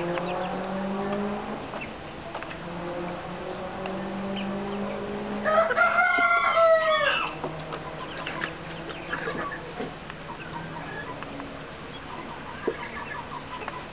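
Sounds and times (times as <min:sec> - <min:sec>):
rooster crowing: 0:05.4 - 0:07.4
hens clucking softly: 0:07.0 - 0:13.9.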